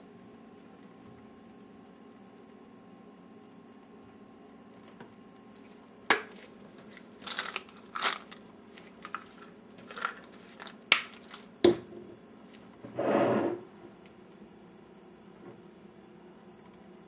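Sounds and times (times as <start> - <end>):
crinkly rustle: 5.6 - 11.5.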